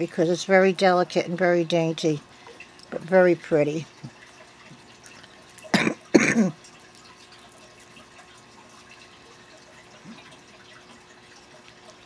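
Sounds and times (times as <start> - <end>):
woman coughing: 5.7 - 6.6.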